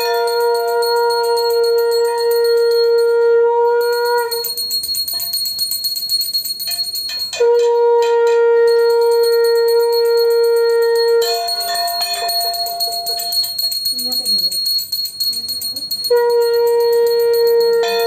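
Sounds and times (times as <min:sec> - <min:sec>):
hand bell ringing rapidly: 0:00.0 - 0:03.2, 0:03.8 - 0:07.6, 0:08.7 - 0:18.0
conch shell blown: 0:00.0 - 0:05.4, 0:07.2 - 0:13.7, 0:16.0 - 0:18.0.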